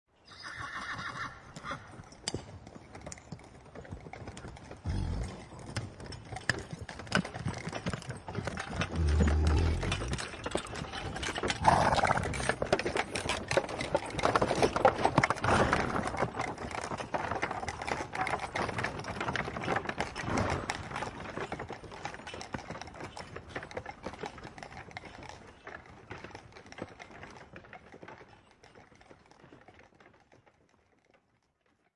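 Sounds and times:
horse neighing: 0:00.2 - 0:01.9, 0:04.8 - 0:05.5, 0:08.8 - 0:10.2, 0:11.5 - 0:12.6
hooves clip-clopping: 0:00.3 - 0:31.9
cart rattling: 0:01.9 - 0:31.2.

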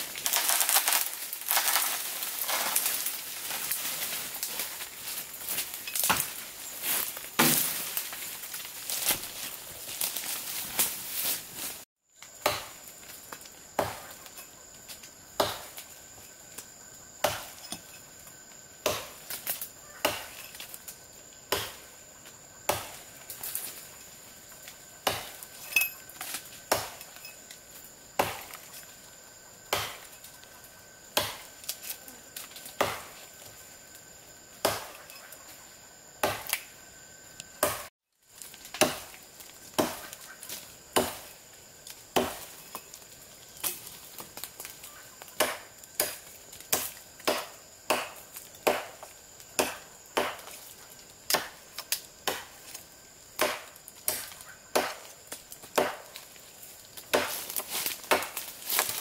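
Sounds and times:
blade chopping wood: 0:05.5 - 0:08.3, 0:12.3 - 0:12.9, 0:15.4 - 0:15.8, 0:17.2 - 0:17.6, 0:25.0 - 0:25.5, 0:26.2 - 0:27.1, 0:28.2 - 0:28.6, 0:29.7 - 0:30.1, 0:31.2 - 0:31.5, 0:32.6 - 0:33.2, 0:34.6 - 0:35.1, 0:36.2 - 0:36.6, 0:37.6 - 0:37.9, 0:38.6 - 0:41.3, 0:42.2 - 0:42.6, 0:45.4 - 0:50.6, 0:51.3 - 0:51.6, 0:53.4 - 0:56.2, 0:57.0 - 0:59.0.

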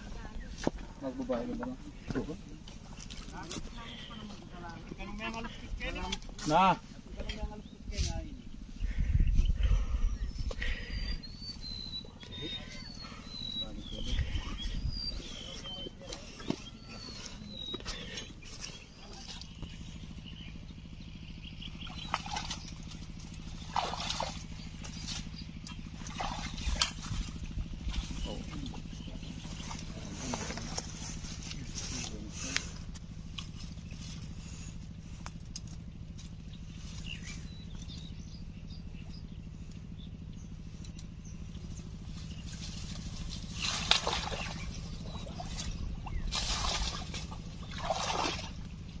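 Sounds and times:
steady low hum: 0:00.0 - 0:49.0
faint bird chirps: 0:07.3 - 0:32.9
brush rustling: 0:22.0 - 0:38.2, 0:40.5 - 0:48.8
twigs rustling and snapping: 0:35.2 - 0:37.1, 0:42.1 - 0:44.7.

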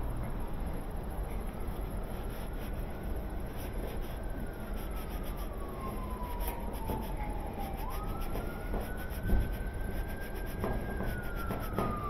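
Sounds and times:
siren-like wailing tone: 0:04.0 - 0:12.0.

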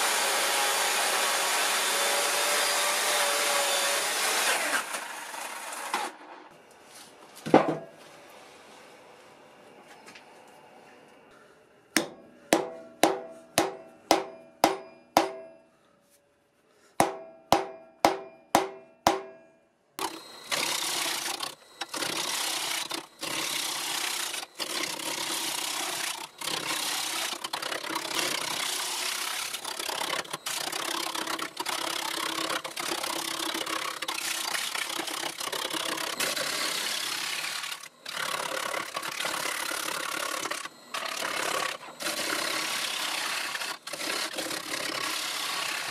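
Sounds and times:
hammer striking steel: 0:12.0 - 0:15.8, 0:17.0 - 0:19.7
wood lathe gouge scraping log: 0:20.0 - 0:45.9.

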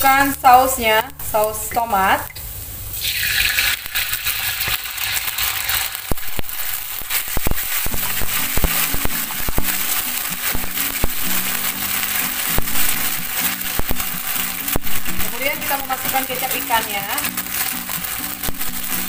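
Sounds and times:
sauce sizzling in hot oil: 0:00.0 - 0:19.0
metal spatula scraping wok: 0:03.1 - 0:19.0.

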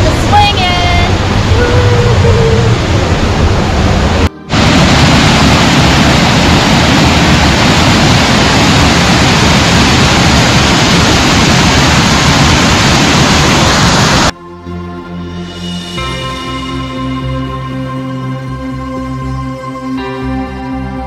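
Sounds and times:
music: 0:00.0 - 0:02.6, 0:04.2 - 0:04.6, 0:14.3 - 0:21.0
waterfall rushing: 0:00.0 - 0:14.3.

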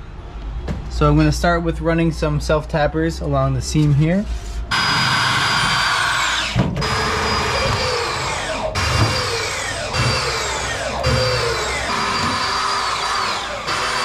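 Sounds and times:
power drill driving screws into steel: 0:04.7 - 0:14.0.

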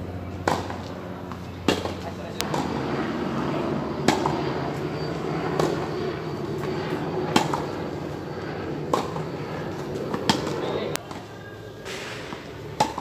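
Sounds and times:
steady background hum: 0:00.0 - 0:13.0
tennis balls struck and bouncing: 0:00.4 - 0:02.8, 0:04.0 - 0:04.4, 0:05.6 - 0:05.9, 0:07.3 - 0:07.7, 0:08.9 - 0:13.0.

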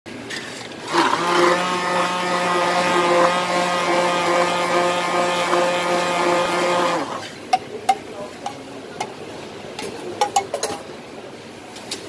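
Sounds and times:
immersion blender whirring: 0:00.8 - 0:07.3.

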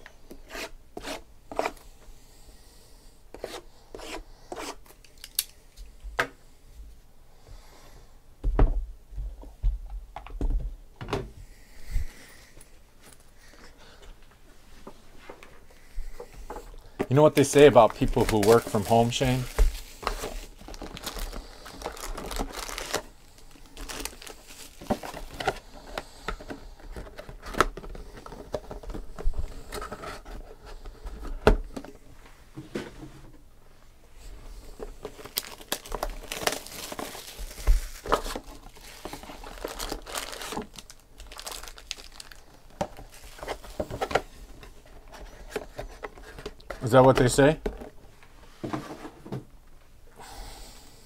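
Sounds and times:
plastic wrap crinkling and tearing: 0:17.2 - 0:25.6, 0:35.0 - 0:43.8.

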